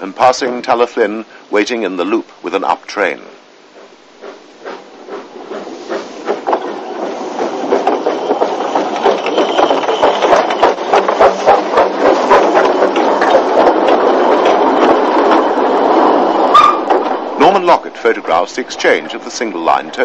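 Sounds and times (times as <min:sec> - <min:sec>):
steam locomotive exhaust beats: 0:03.2 - 0:20.0
steam hissing: 0:03.3 - 0:16.6.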